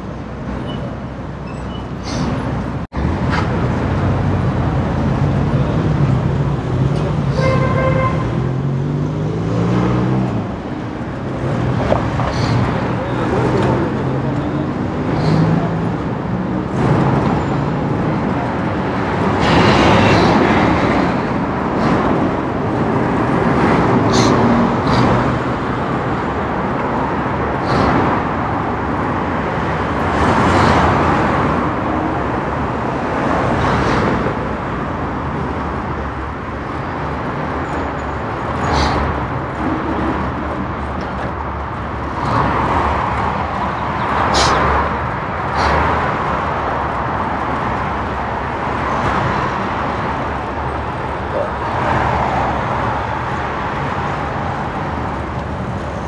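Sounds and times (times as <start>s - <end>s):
cars and buses passing: 0.0s - 56.0s
voices: 12.5s - 15.8s.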